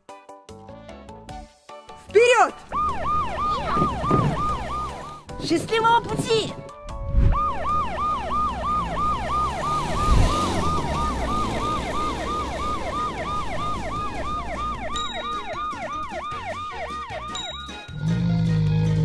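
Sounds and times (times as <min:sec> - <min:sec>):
ambulance siren yelping: 0:02.7 - 0:05.4, 0:07.2 - 0:18.0.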